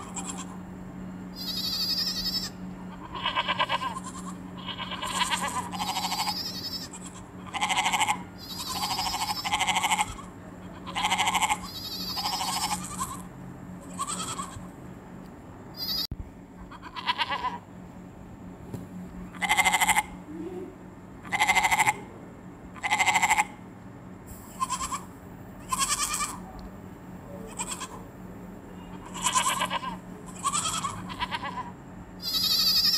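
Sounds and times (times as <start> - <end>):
goats bleating: 0.0 - 0.6, 1.4 - 14.7, 16.7 - 17.6, 19.4 - 20.2, 21.2 - 22.1, 22.8 - 23.5, 24.5 - 26.4, 27.4 - 28.0, 28.9 - 32.9.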